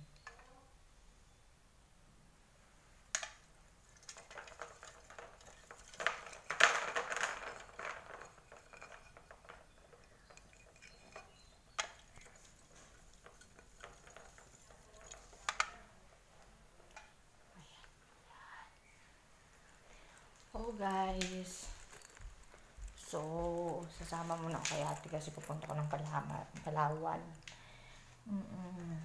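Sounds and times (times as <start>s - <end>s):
beads and chain clicking: 3.9s - 15.8s, 20.1s - 27.6s.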